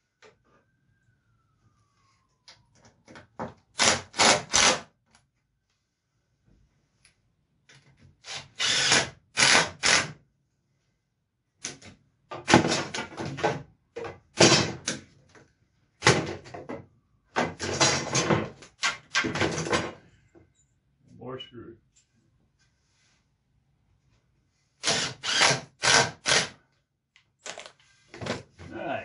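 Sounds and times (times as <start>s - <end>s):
cordless drill driving screws: 3.8s - 4.8s, 8.2s - 10.2s, 24.8s - 26.6s.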